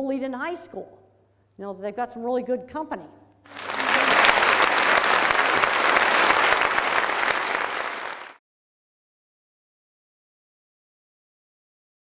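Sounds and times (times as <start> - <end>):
audience applauding: 3.5 - 8.4.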